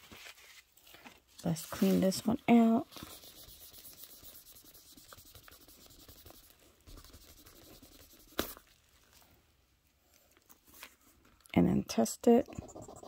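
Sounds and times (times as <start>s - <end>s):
tissue rubbing on stone: 1.5s - 8.7s.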